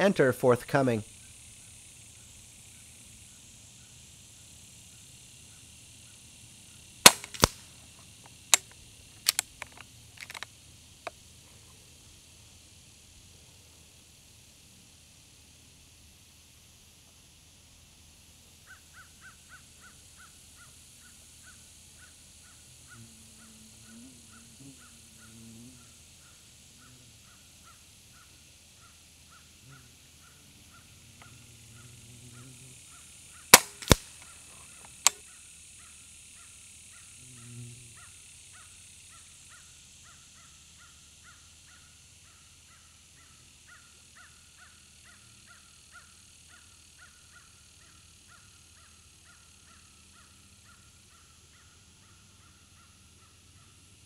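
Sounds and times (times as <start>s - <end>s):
air rifle shot crack: 7.0s - 7.7s, 33.5s - 34.2s
pellet striking target: 7.1s - 7.6s, 33.6s - 34.1s.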